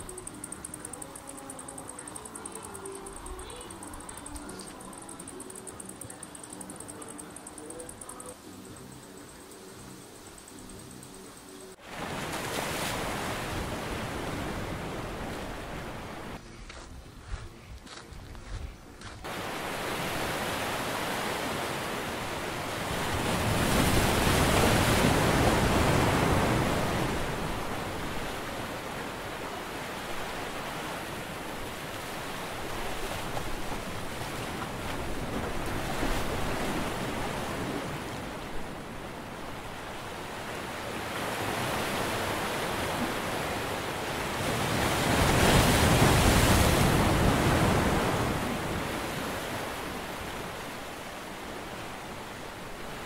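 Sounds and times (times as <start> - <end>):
sea surf breaking: 11.8 - 16.4, 19.3 - 53.0.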